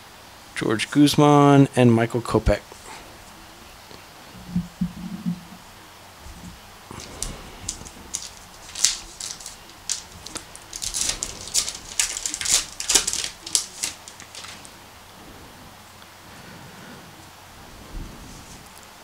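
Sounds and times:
foil wrapper crinkling and tearing: 0:06.9 - 0:14.8.

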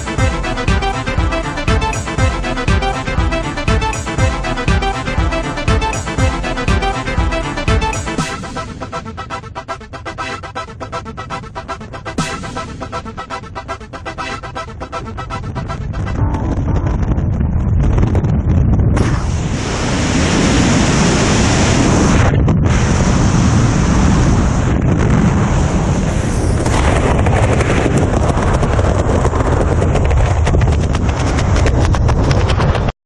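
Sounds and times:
wind rushing over microphone: 0:14.8 - 0:32.9.

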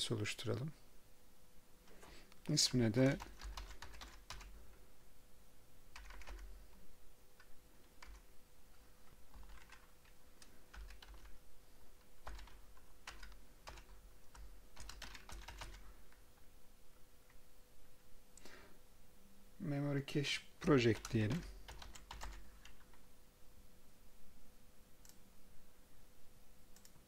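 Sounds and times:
faint steady hum: 0:00.0 - 0:27.0
keyboard typing: 0:03.0 - 0:04.6, 0:05.9 - 0:06.5, 0:07.4 - 0:08.3, 0:09.3 - 0:11.4, 0:12.2 - 0:16.2, 0:20.6 - 0:23.0.

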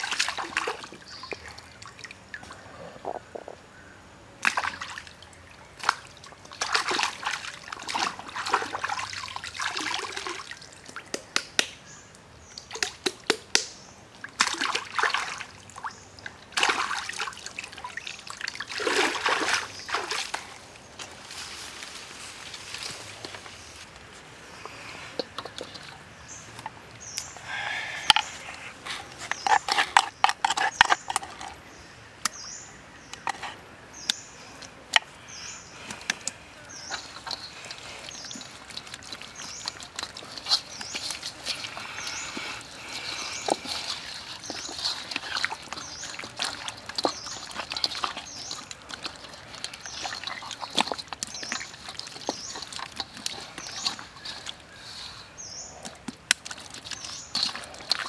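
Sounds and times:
hands squelching paste on meat: 0:35.7 - 0:58.0.

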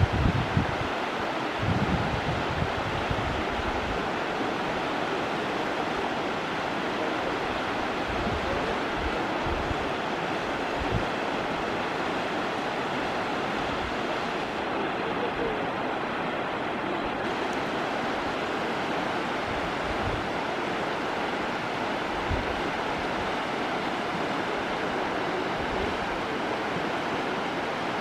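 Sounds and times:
wind buffeting microphone: 0:00.0 - 0:04.2, 0:07.5 - 0:11.9, 0:21.1 - 0:24.4
river rushing over rocks: 0:00.0 - 0:28.0.

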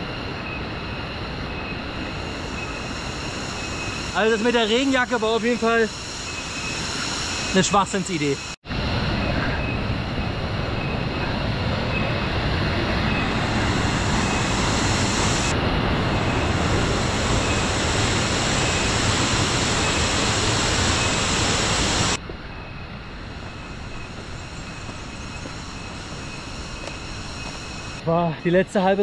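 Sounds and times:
waterfall rushing: 0:12.2 - 0:22.2.

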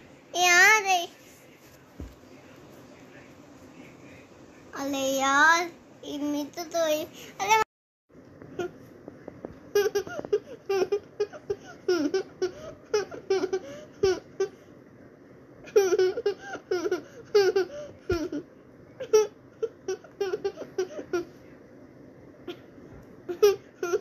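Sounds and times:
young child giggling: 0:09.7 - 0:14.6, 0:15.7 - 0:21.3, 0:23.3 - 0:24.0.

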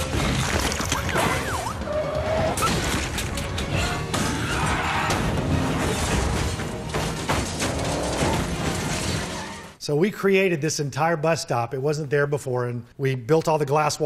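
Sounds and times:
crashes and smashing debris: 0:00.0 - 0:01.5, 0:02.5 - 0:09.8
action film music: 0:00.0 - 0:09.8.

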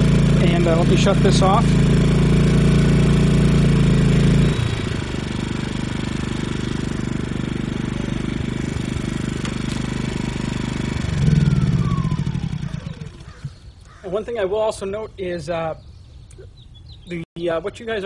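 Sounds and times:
generators running: 0:00.0 - 0:13.8.

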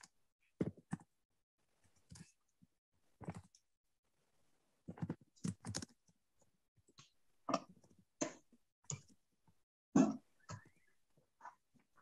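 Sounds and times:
keyboard and mouse clicks: 0:04.9 - 0:06.2.

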